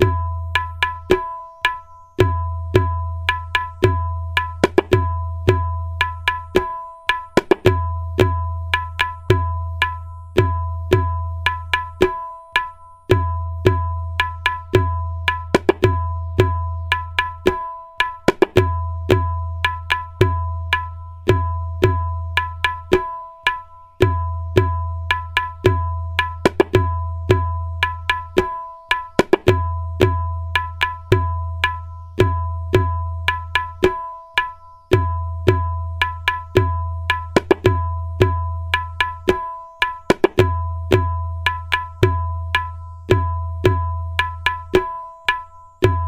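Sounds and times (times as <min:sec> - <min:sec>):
deep resonant tabla bass: 0:00.0 - 0:46.0
tabla treble strokes ringing: 0:00.0 - 0:46.0.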